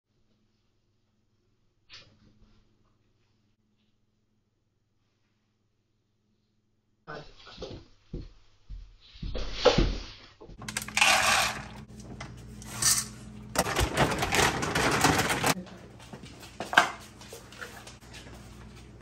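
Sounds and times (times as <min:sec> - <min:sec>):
dry kibble rattling into bowls: 0:10.6 - 0:11.9, 0:12.6 - 0:15.6.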